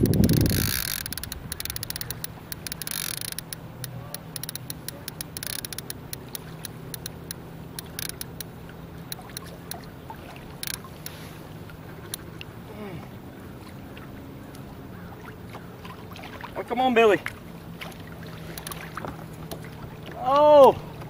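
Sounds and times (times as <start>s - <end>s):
sharp clicks and taps: 0.0s - 8.5s
faint water noise: 0.0s - 21.0s.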